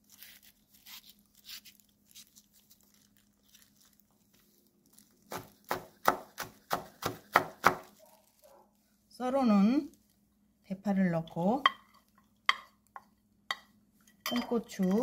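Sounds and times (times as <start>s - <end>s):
knife chopping on wooden board: 5.3s - 7.9s.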